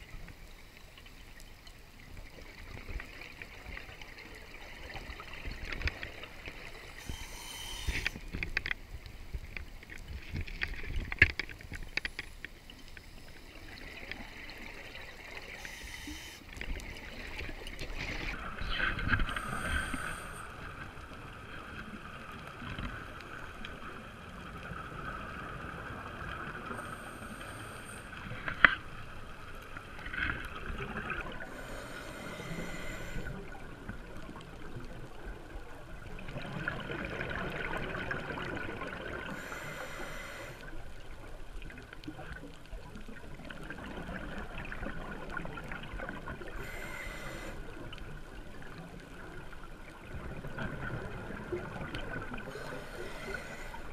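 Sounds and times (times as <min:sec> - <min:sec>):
regulator hiss: 0:06.5 - 0:08.5, 0:11.8 - 0:18.4, 0:19.2 - 0:20.8, 0:26.6 - 0:28.5, 0:31.4 - 0:33.6, 0:39.3 - 0:40.8, 0:46.4 - 0:47.9, 0:52.4 - 0:53.9
exhaled air bubbling: 0:50.0 - 0:53.9.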